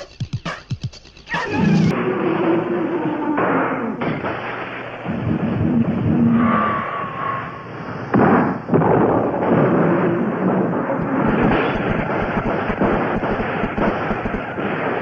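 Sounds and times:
rumble of explosions: 1.5 - 15.0
explosion blasts: 4.0 - 15.0.

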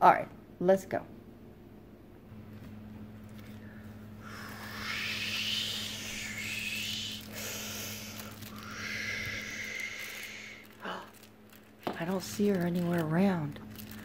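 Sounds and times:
faint steady hum: 0.0 - 14.0
long hissing whooshes: 4.2 - 11.1.

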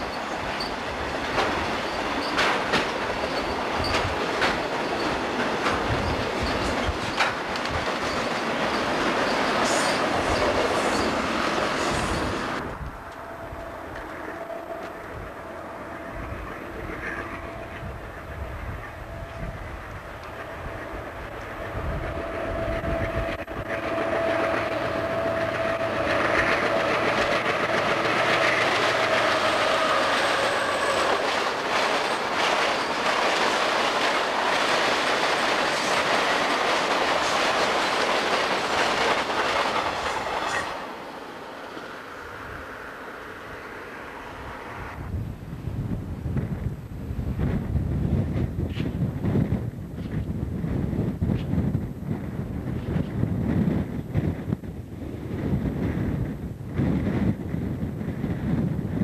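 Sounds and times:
wheels clicking over rail joints: 0.0 - 15.3, 23.4 - 41.1
wind buffeting microphone: 0.0 - 40.8, 41.8 - 59.0
steel wheels rushing on rail: 0.0 - 59.0.

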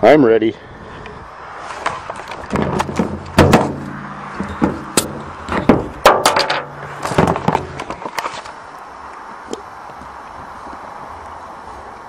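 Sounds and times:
sharp clicks and knocks: 1.8 - 8.4.

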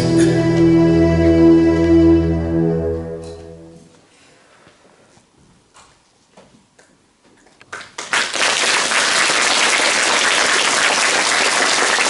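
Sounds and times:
audience applauding: 7.7 - 12.0.

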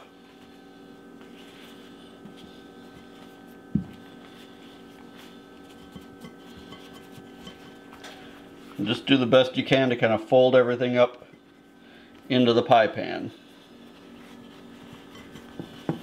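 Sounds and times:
steady hum: 0.0 - 16.0
tortillas rustling: 13.4 - 16.0.

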